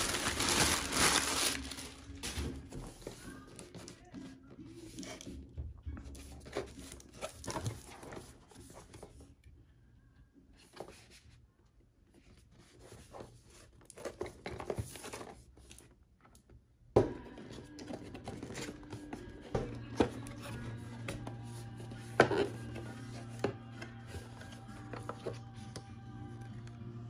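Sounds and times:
cardboard scraping and rustling: 0.0s - 4.0s, 6.3s - 9.2s.

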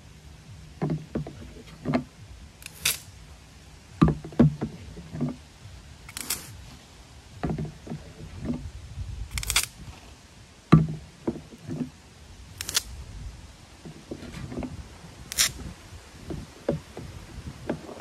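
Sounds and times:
low thumps and knocks: 0.5s - 2.5s, 3.9s - 5.8s, 7.3s - 9.2s, 10.7s - 12.0s, 13.8s - 18.0s
sprayer nozzle hissing bursts: 6.1s - 6.8s.

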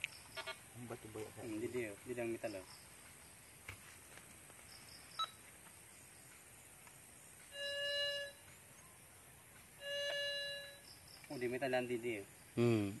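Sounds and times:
metal detector chirp: 5.1s - 5.4s, 7.5s - 8.5s, 9.8s - 11.5s
metal detector beep: 5.2s - 5.4s, 7.5s - 8.5s, 9.8s - 10.9s.

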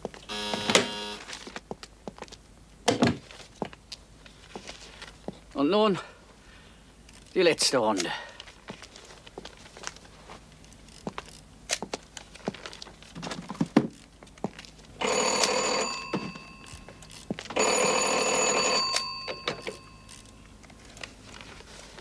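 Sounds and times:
telephone bell ringing: 0.3s - 1.3s, 15.0s - 17.0s, 17.6s - 20.3s.

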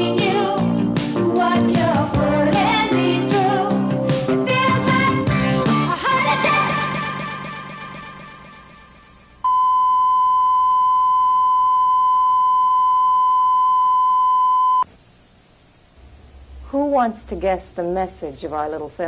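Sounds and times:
music: 0.0s - 9.4s
steady electronic beep: 9.5s - 14.8s.

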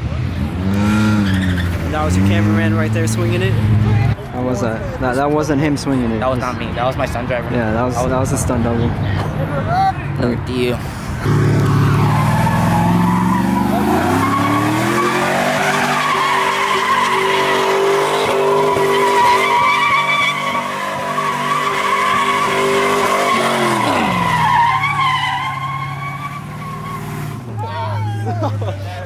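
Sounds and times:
car engine revving: 0.0s - 4.2s, 10.8s - 27.6s
tyres squealing: 11.6s - 28.0s.

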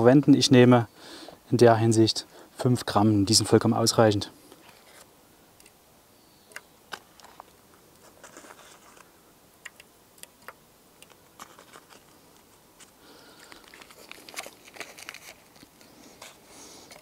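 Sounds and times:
foil wrapper crinkling: 6.9s - 9.1s, 11.0s - 17.0s
small scattered clicks: 8.9s - 15.7s.

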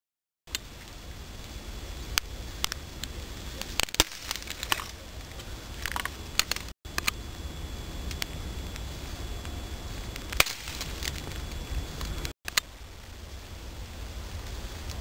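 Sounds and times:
steady low rumble: 0.5s - 15.0s
dry twig cracking and snapping: 2.2s - 7.2s, 10.1s - 12.7s.

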